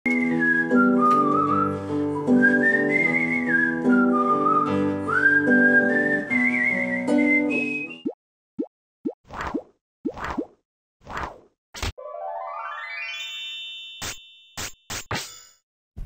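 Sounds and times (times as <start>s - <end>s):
whistled melody over chords: 0.0s - 8.2s.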